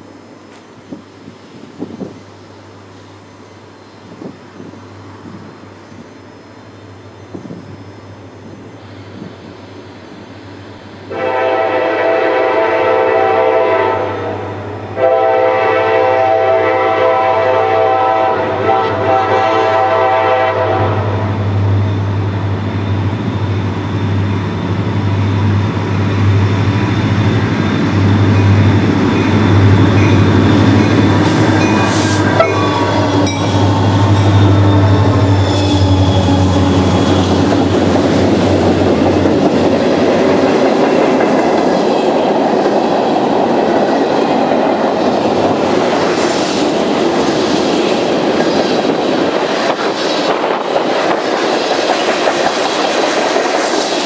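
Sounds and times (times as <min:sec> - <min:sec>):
diesel locomotive drone: 0:00.0 - 0:54.0
locomotive air horn: 0:11.1 - 0:21.4, 0:31.5 - 0:37.4.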